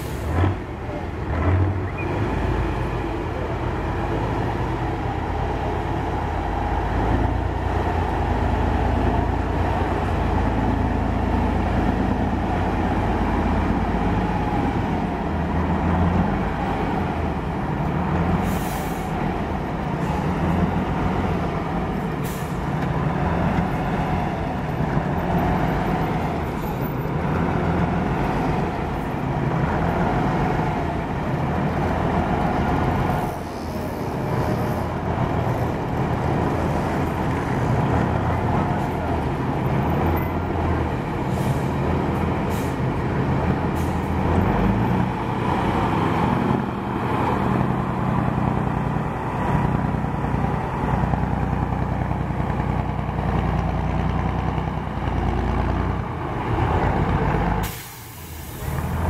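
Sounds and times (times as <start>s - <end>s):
truck diesel engine under load: 0.0s - 59.0s
short hisses: 57.6s - 58.9s.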